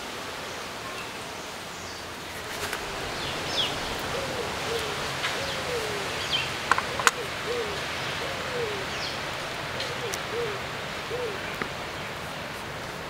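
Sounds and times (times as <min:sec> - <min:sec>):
outdoor background hiss: 0:00.0 - 0:13.0
low hoot-like bird call: 0:03.3 - 0:11.6.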